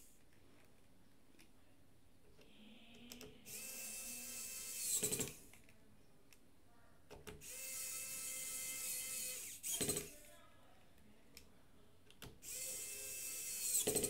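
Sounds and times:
electric screwdriver motor whine: 0:03.5 - 0:05.4, 0:07.4 - 0:10.1, 0:12.4 - 0:14.0
screwdriver rattle: 0:08.8 - 0:10.2, 0:12.4 - 0:14.0.

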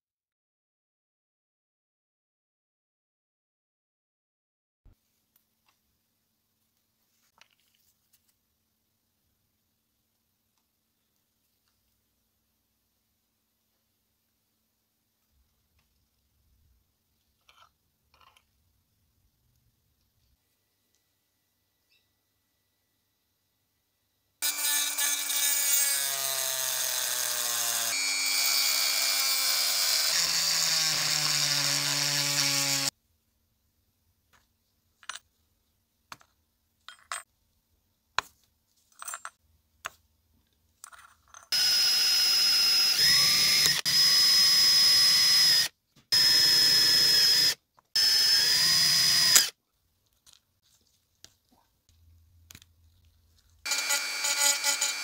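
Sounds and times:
rotary tool drilling metal: 0:24.4 - 0:32.9, 0:41.6 - 0:49.6, 0:53.7 - 0:55.0.

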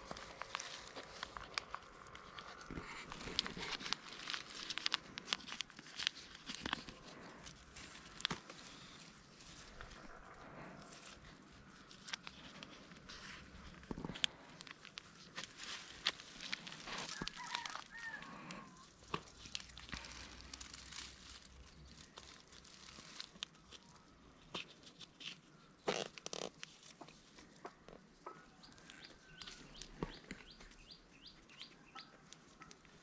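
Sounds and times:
hands clicking and rustling: 0:00.0 - 0:10.2, 0:10.9 - 0:30.9
bird calls: 0:28.2 - 0:32.2.

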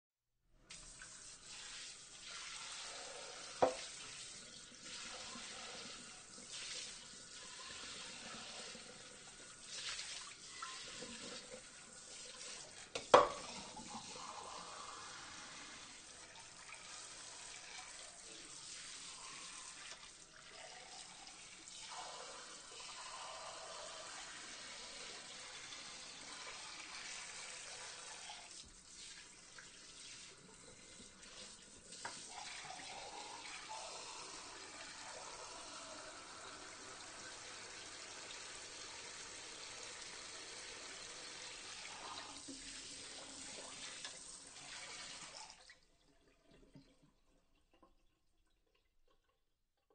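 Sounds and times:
water spraying over dishes: 0:00.7 - 0:45.5
dishware knocking: 0:13.0 - 0:13.4.

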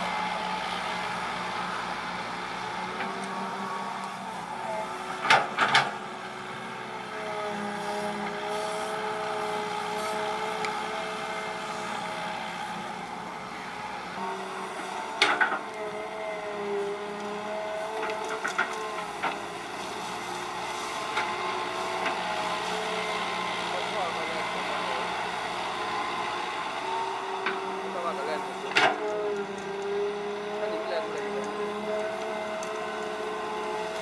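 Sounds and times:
excavator diesel engine under load: 0:00.0 - 0:34.0.

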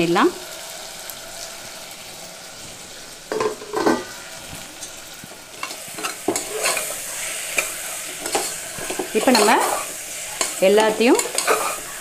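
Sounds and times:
food sizzling in oil: 0:00.0 - 0:12.0
spoon scraping pot: 0:05.6 - 0:12.0.

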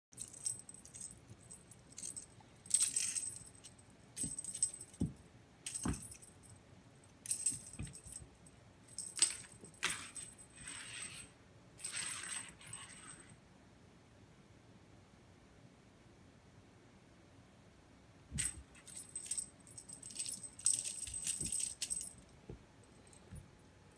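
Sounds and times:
small bell jingling: 0:00.2 - 0:06.6, 0:07.2 - 0:10.7, 0:18.4 - 0:23.4.

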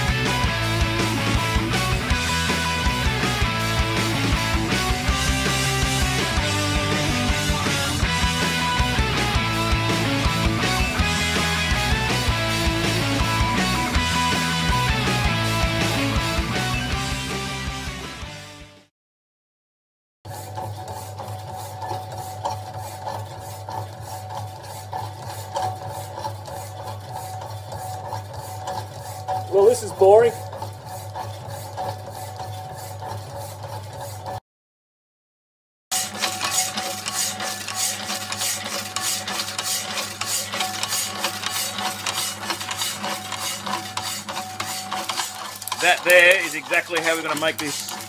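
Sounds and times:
hacksaw blade rasping through metal: 0:20.3 - 0:34.4, 0:35.9 - 0:48.0
motor hum: 0:20.3 - 0:34.4, 0:36.0 - 0:48.0.

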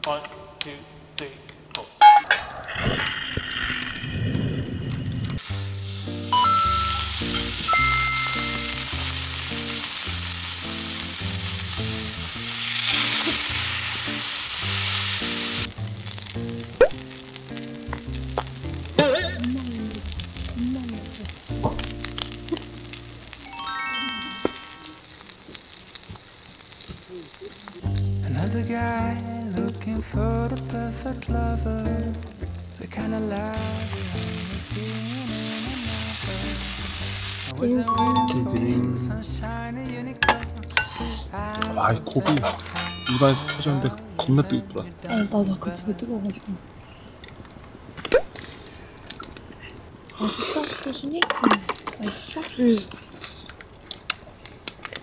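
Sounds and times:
sausages sizzling in a frying pan: 0:02.1 - 0:39.0, 0:40.1 - 0:44.5, 0:45.1 - 0:47.6, 0:50.1 - 0:55.0
background music: 0:05.5 - 0:25.0, 0:27.9 - 0:46.1
tongs clicking: 0:06.4 - 0:08.8, 0:40.2 - 0:44.4.

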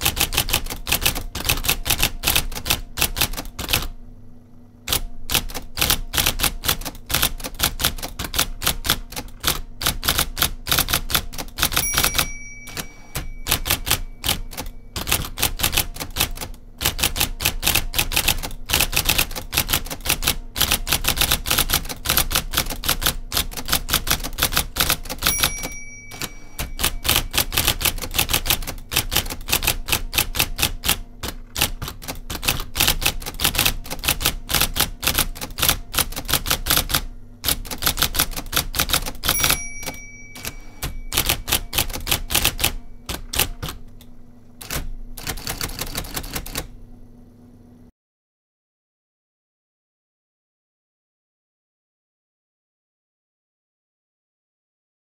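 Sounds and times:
electric typewriter clattering: 0:00.0 - 0:04.0, 0:04.8 - 0:46.8
typewriter motor humming: 0:00.0 - 0:04.0, 0:04.8 - 0:46.8
short ringing tone: 0:11.8 - 0:15.0, 0:25.2 - 0:28.1, 0:39.3 - 0:43.0.

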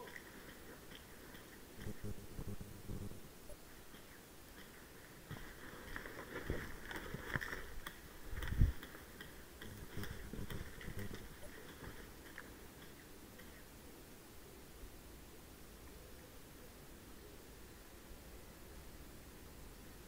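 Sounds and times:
clicks and rustling on rubble: 0:05.3 - 0:09.0.

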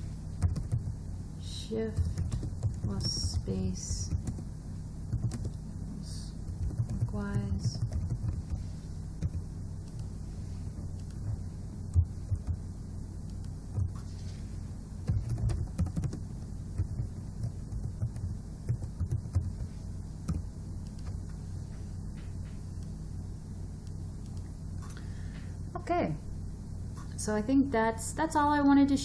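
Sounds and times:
low electrical hum: 0:00.0 - 0:29.0
keyboard typing: 0:00.4 - 0:01.0, 0:01.9 - 0:04.4, 0:05.1 - 0:05.6, 0:06.4 - 0:08.6, 0:09.2 - 0:10.1, 0:10.9 - 0:12.6, 0:13.2 - 0:14.1, 0:15.0 - 0:21.4.

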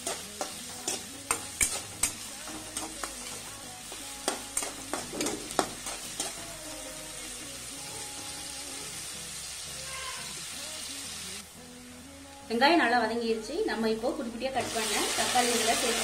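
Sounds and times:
metal spatula scraping pan: 0:00.0 - 0:03.4, 0:04.2 - 0:06.4
onions sizzling in oil: 0:00.0 - 0:16.0.

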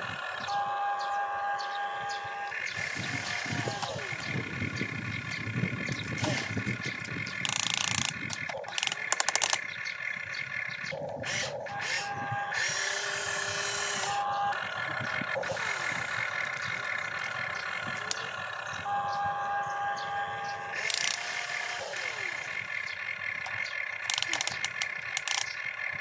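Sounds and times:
toy electric motors whining: 0:00.0 - 0:10.0, 0:10.7 - 0:26.0
fast rattle of clicks: 0:02.6 - 0:11.5, 0:20.8 - 0:21.4, 0:22.5 - 0:26.0.

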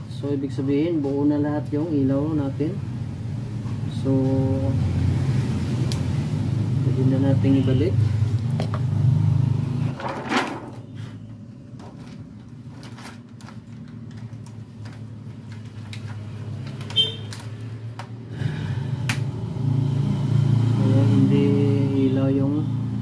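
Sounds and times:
plastic sheet rustling: 0:11.8 - 0:17.6.

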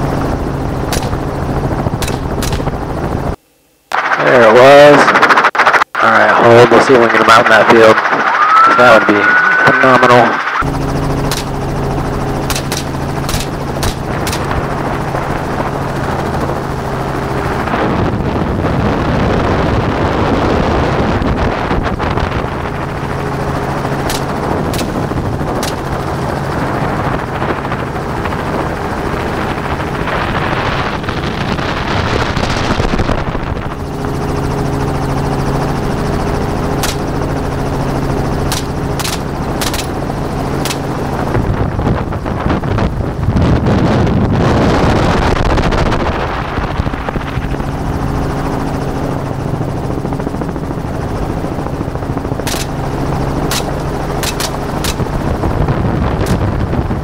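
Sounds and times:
helicopter engine and rotor drone: 0:00.0 - 0:57.0
gunshots: 0:00.9 - 0:01.3, 0:02.0 - 0:02.8, 0:11.3 - 0:11.6, 0:12.4 - 0:14.6, 0:24.0 - 0:25.9, 0:36.8 - 0:37.2, 0:38.5 - 0:40.0, 0:52.5 - 0:52.8, 0:53.5 - 0:55.2
wind rushing over microphone: 0:11.1 - 0:57.0.

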